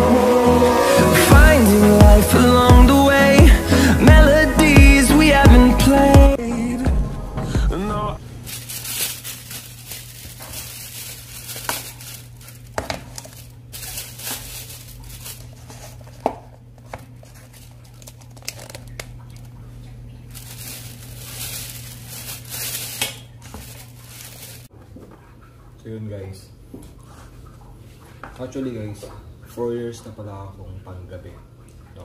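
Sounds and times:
food packaging crinkling: 0:08.3 - 0:19.6, 0:20.2 - 0:24.7.

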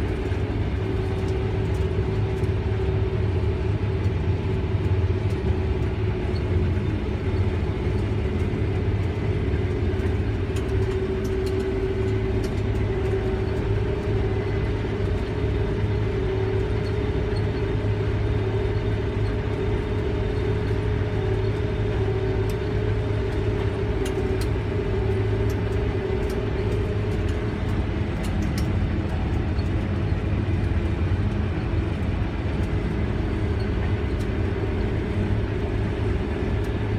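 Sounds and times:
combine harvester engine drone: 0:00.0 - 0:36.9
faint light ticks: 0:10.0 - 0:13.7, 0:25.5 - 0:28.8.

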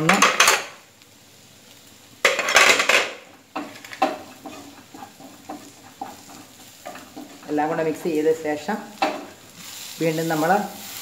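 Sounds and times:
wooden spatula scraping metal pan: 0:03.6 - 0:08.2.

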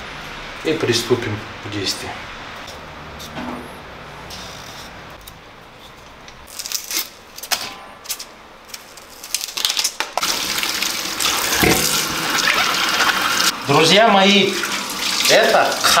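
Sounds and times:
kitchen tap running: 0:10.2 - 0:16.0.

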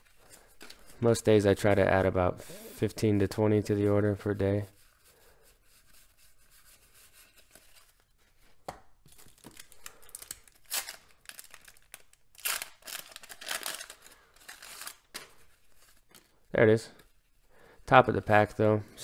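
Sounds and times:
wax paper wrapper tearing: 0:09.6 - 0:15.1.

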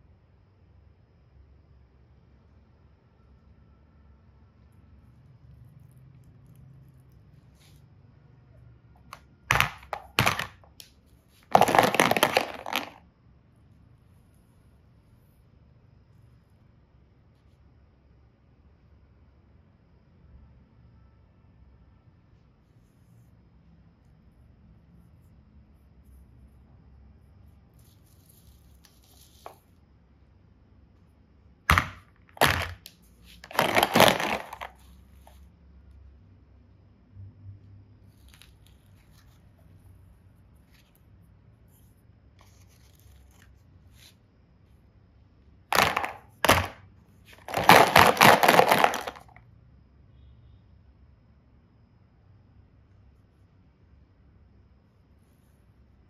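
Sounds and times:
plastic toys clattering in basket: 0:09.5 - 0:10.8, 0:11.4 - 0:13.0, 0:31.7 - 0:34.9, 0:45.7 - 0:49.4.

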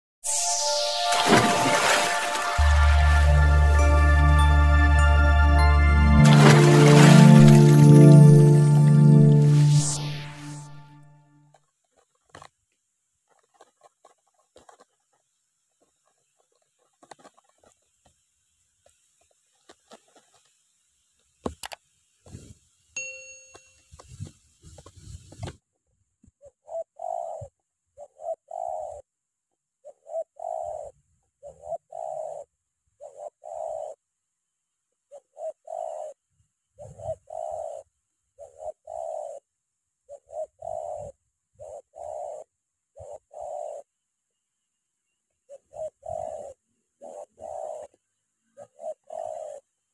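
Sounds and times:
rustling and light clicks: 0:11.5 - 0:22.6, 0:23.6 - 0:25.6
brief ringing tone: 0:23.0 - 0:23.8
dove cooing: 0:26.4 - 0:29.0, 0:29.8 - 0:34.0, 0:35.1 - 0:36.2, 0:36.8 - 0:39.4, 0:40.1 - 0:43.9, 0:45.5 - 0:49.7.

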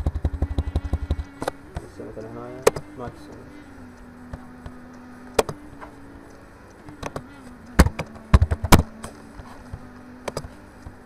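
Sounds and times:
low steady hum: 0:00.0 - 0:11.0
mouse and keyboard clicks: 0:05.4 - 0:05.6, 0:07.0 - 0:10.6.

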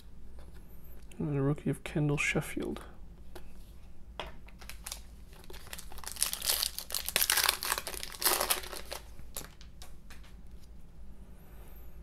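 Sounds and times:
plastic wrapper crinkling: 0:04.4 - 0:10.4.

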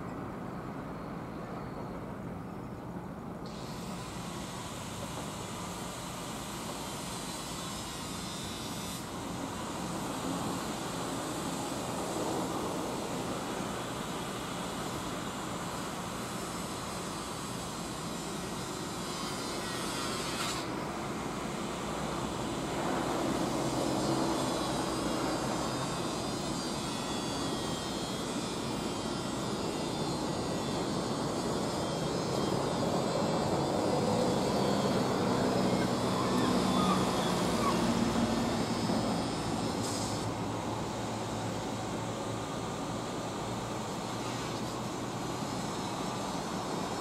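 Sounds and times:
outdoor background noise: 0:00.0 - 0:47.0
distant engine droning: 0:20.7 - 0:46.9.

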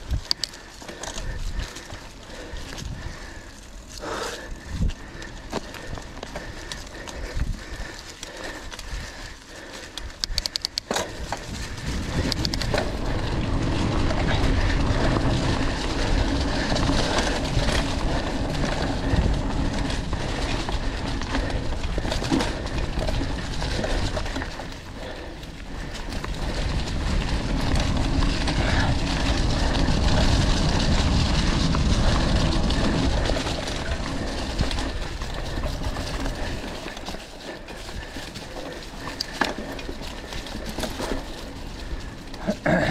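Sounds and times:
bike rattling over ground: 0:00.0 - 0:42.9
bike tyre rumble: 0:00.0 - 0:42.9
sharp ticks: 0:00.1 - 0:00.6, 0:09.8 - 0:11.0, 0:12.2 - 0:12.8.

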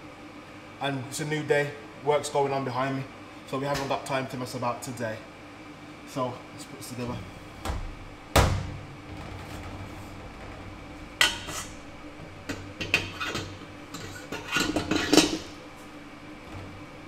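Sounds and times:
metal mixer parts clanking: 0:12.4 - 0:15.6.

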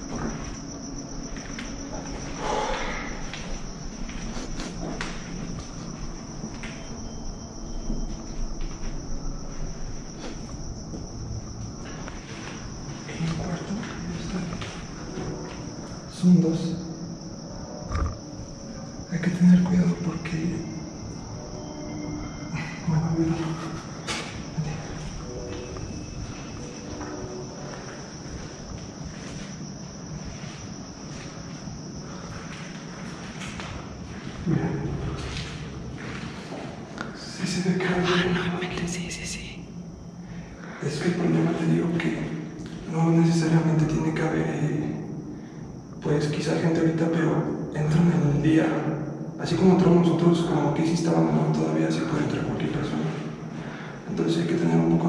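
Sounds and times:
crickets trilling: 0:00.0 - 0:55.0
footsteps on gritty floor: 0:24.0 - 0:37.0.

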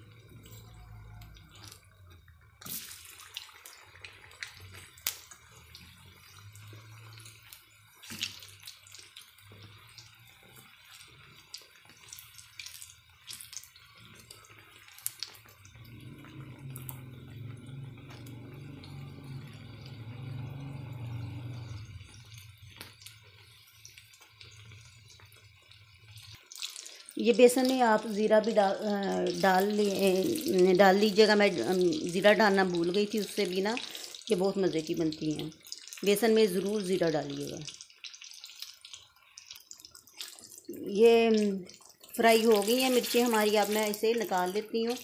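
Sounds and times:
chillies sizzling in hot oil: 0:00.0 - 0:45.0
low hum: 0:15.8 - 0:22.8.

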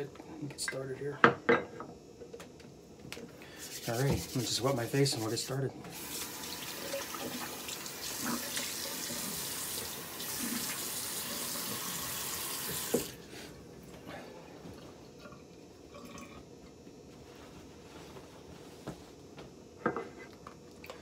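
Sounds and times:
tap running with water splashing: 0:05.9 - 0:13.2.

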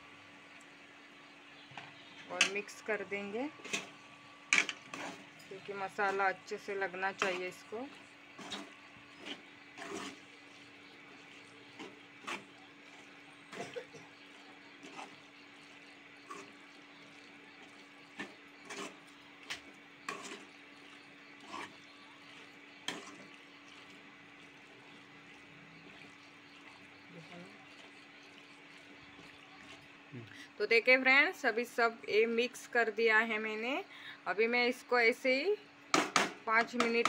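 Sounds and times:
spoon scraping metal pan: 0:03.6 - 0:06.3, 0:07.1 - 0:12.6, 0:14.8 - 0:15.2, 0:18.1 - 0:23.4.

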